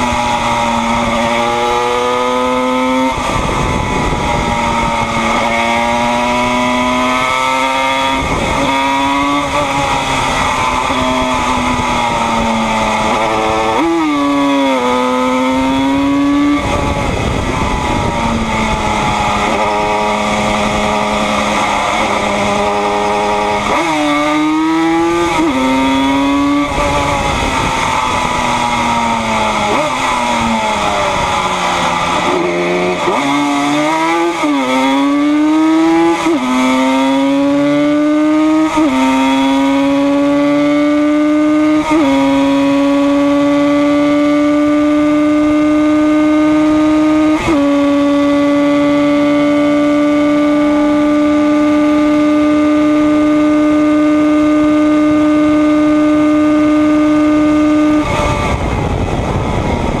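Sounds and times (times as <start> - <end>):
wind rush: 0.0 - 40.1, 56.2 - 60.0
race bike engine accelerating: 0.0 - 60.0.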